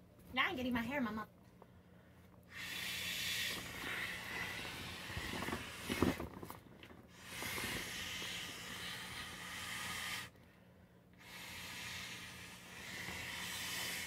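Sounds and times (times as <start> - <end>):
breath blowing through valve: 2.5 - 6.3, 7.1 - 14.0.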